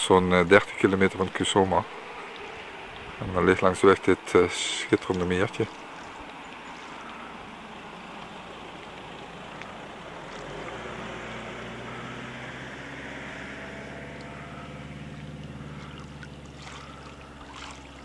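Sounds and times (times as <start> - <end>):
motor droning: 5.8 - 18.0.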